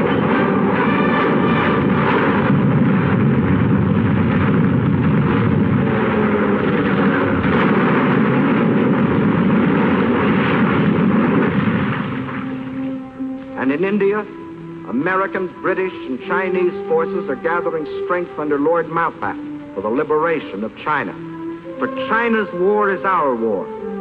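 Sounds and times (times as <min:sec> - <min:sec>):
explosions: 0:00.0 - 0:15.8
gunfire: 0:00.1 - 0:12.9.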